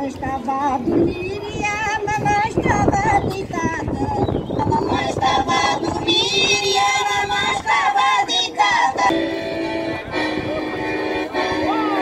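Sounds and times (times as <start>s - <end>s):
woman singing with vibrato: 0.0s - 9.4s.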